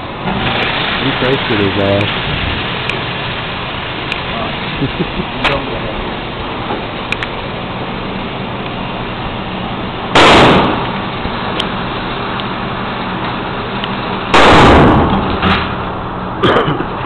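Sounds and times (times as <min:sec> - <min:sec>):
steady background noise: 0:00.0 - 0:17.0
gunshots with short echo: 0:10.2 - 0:10.9, 0:14.3 - 0:15.2.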